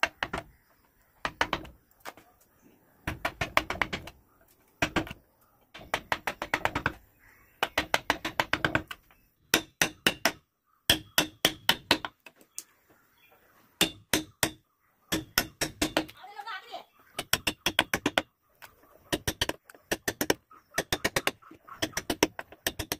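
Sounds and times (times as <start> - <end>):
mallet tapping chisel into wood: 7.6 - 12.1, 13.8 - 16.2, 17.2 - 18.3.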